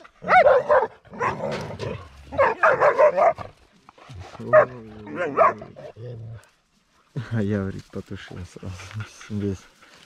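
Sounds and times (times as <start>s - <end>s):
dogs barking: 0.0s - 3.5s, 4.4s - 6.0s.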